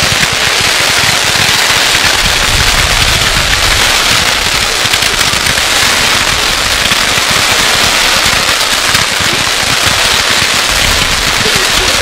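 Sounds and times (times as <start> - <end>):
fireworks crackling: 0.0 - 12.0.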